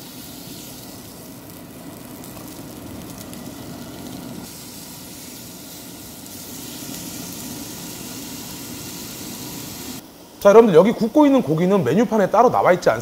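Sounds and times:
beef sizzling on grill plate: 0.0s - 10.0s.

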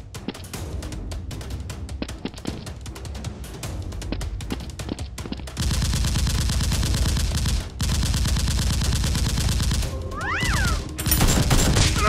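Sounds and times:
machine-gun fire: 5.6s - 10.0s.

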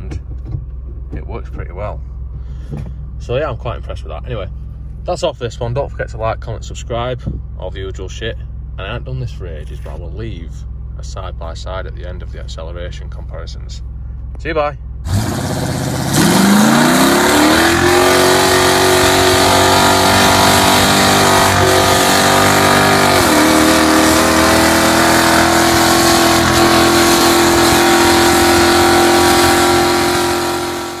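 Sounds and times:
car engine accelerating hard: 15.0s - 31.0s.

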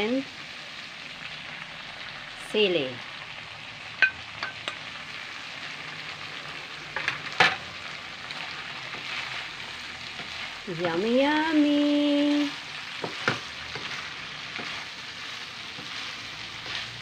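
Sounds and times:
food sizzling in a wok: 0.0s - 17.0s
spatula clattering against wok: 4.0s - 4.8s.

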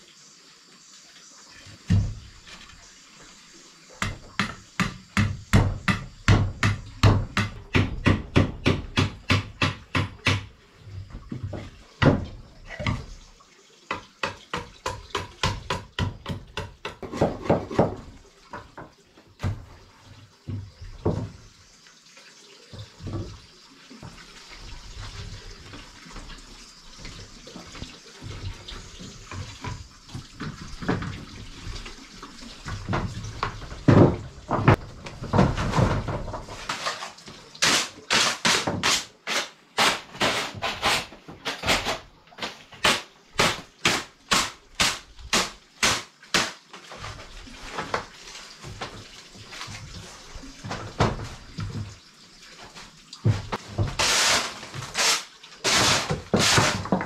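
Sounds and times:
machete chopping wooden board: 4.0s - 10.5s, 37.6s - 46.6s
knocks of wood being handled: 4.0s - 13.2s, 13.9s - 19.8s, 32.6s - 39.0s.

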